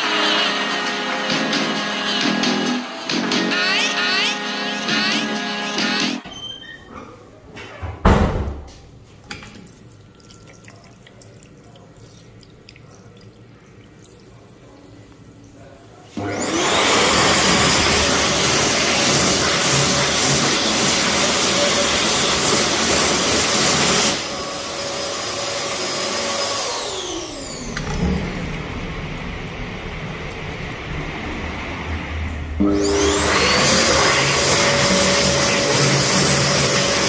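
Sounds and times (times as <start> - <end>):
hand dryer blowing air: 0.0 - 6.2, 16.2 - 37.0.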